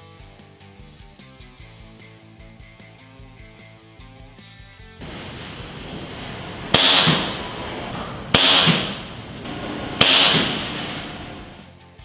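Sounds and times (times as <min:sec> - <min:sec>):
air rifle shots with echo: 0:05.0 - 0:11.6.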